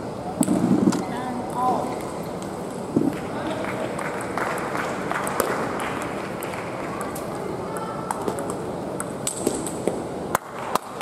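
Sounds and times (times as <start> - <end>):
table tennis balls clicking: 5.2 - 11.0.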